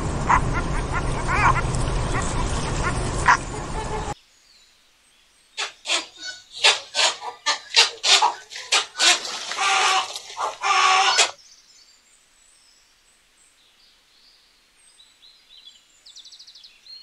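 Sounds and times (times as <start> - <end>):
loud harsh animal calls: 0.0 - 4.2, 5.6 - 11.4
bird rapid trill: 0.2 - 4.1, 5.6 - 11.4
songbird chirps: 0.3 - 17.0.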